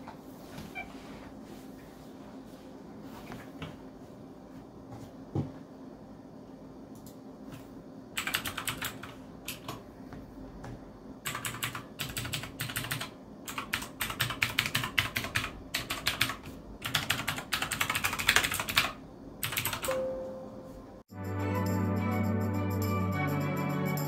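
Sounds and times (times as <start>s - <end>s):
mechanical keyboard typing: 8.2s - 9.8s, 11.2s - 20.0s.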